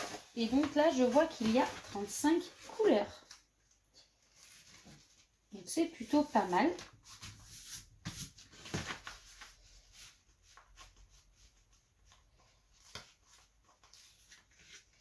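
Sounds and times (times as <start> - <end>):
plastic film rustling and crackling: 0.0 - 3.5.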